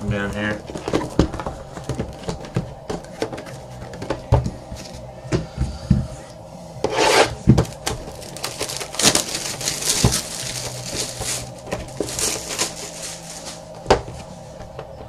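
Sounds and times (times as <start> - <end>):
shrink wrap crinkling and tearing: 7.6 - 13.8.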